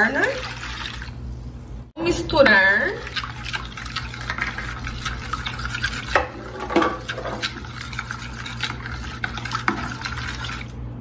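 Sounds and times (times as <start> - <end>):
liquid swishing: 0.0 - 1.9, 2.5 - 11.0
spoon clinking and scraping bowl: 3.0 - 10.8.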